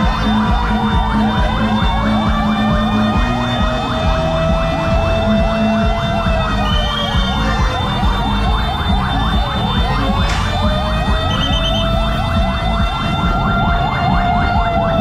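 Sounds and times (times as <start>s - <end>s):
fire truck sirens: 0.0s - 15.0s.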